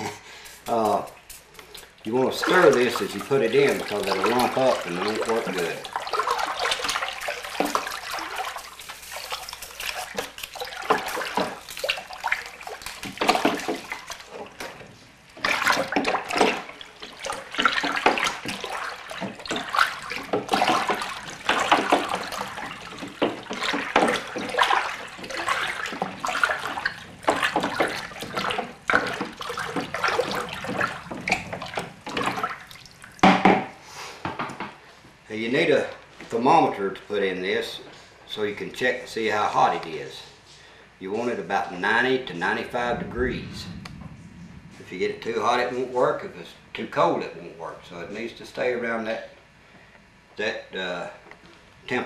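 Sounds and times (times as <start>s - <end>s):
liquid sloshing in a plastic cooler: 0.6s - 33.8s.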